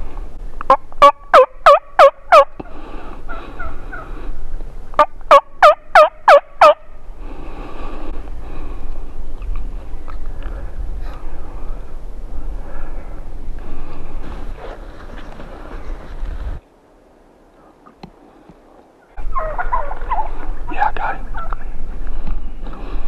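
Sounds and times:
turkey yelps: 0.7 - 2.5, 5.0 - 6.8, 19.1 - 21.6.

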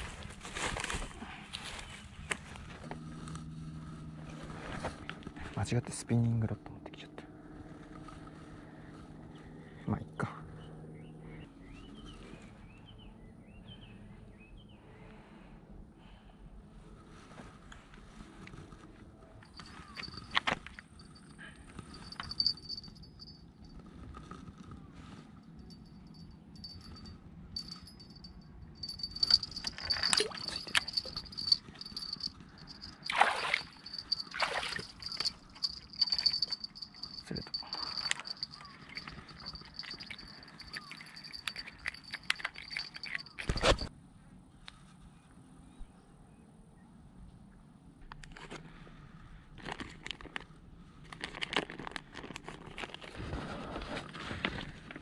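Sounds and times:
fish splashing in water: 33.0 - 35.2
sharp clicks and crackles: 49.6 - 53.1
plastic packet crinkling: 51.1 - 53.1.

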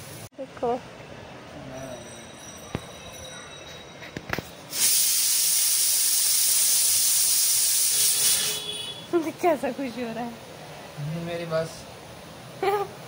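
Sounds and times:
hiss of escaping gas: 4.7 - 8.9.

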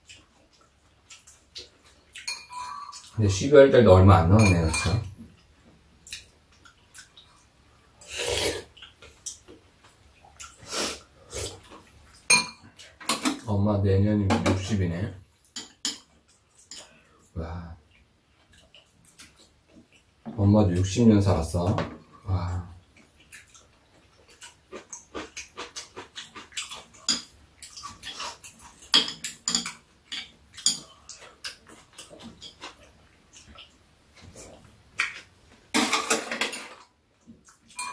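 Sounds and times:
chewing: 0.0 - 3.2, 6.0 - 13.0, 17.9 - 20.1, 22.8 - 35.3
spoon and chopsticks clicking bowls: 2.2 - 3.0, 28.8 - 30.8
utensils clinking against bowls: 2.2 - 3.2, 4.3 - 5.1, 12.3 - 13.4, 27.0 - 31.2
slurping soup: 8.0 - 8.8, 10.5 - 11.7.

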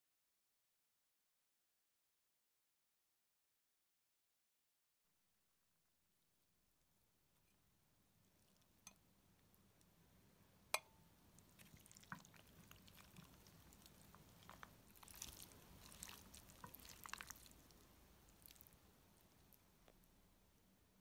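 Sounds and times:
food squishing: 8.2 - 9.0, 11.3 - 20.1.

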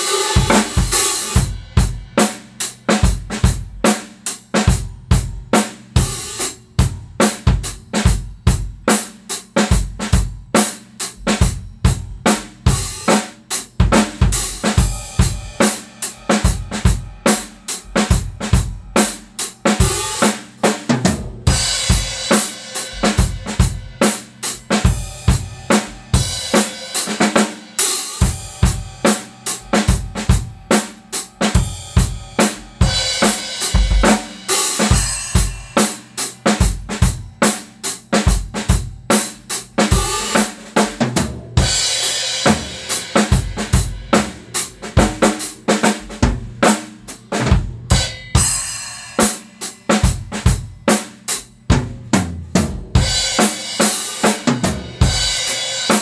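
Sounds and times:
snare drum: 0.0 - 1.5, 28.2 - 37.6, 38.3 - 48.4, 51.7 - 56.0.

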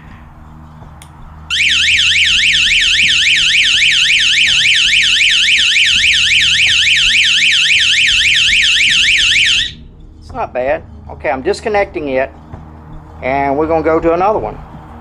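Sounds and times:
electronic alarm siren warbling: 1.5 - 9.8.

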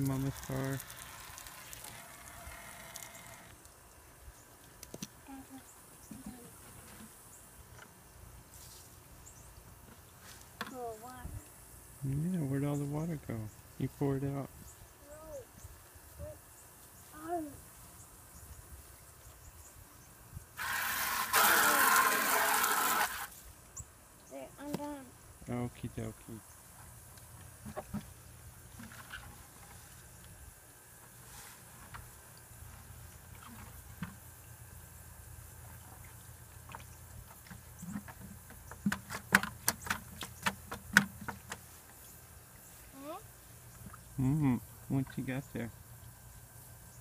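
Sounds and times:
hose spraying into plastic bucket: 0.0 - 3.5, 20.6 - 23.4.

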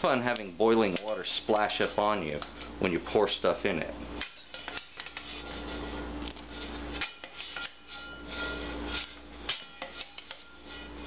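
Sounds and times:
metal spoon scraping a steel bowl: 4.2 - 11.0.

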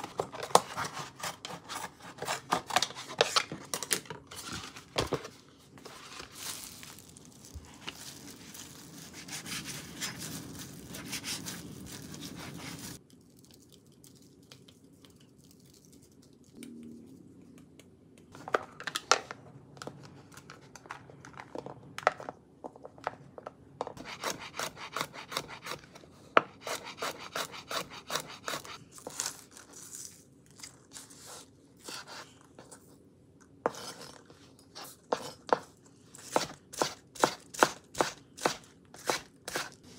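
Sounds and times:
paper rubbing and tearing: 9.0 - 13.0
knife chopping on cutting board: 35.1 - 39.7.

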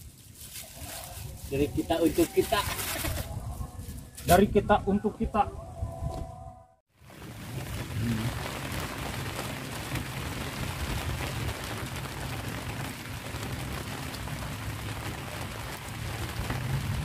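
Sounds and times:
rain falling on water: 6.9 - 17.0.

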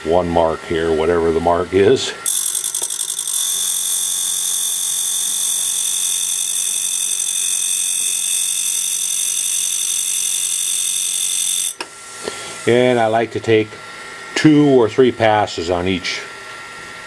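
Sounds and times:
grinding wheel whining: 2.2 - 11.9.

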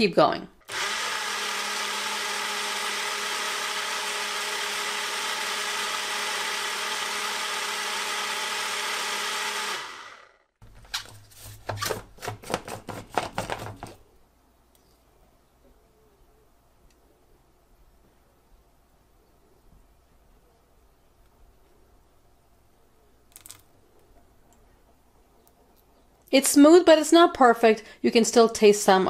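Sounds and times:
blender motor running: 0.6 - 10.5.

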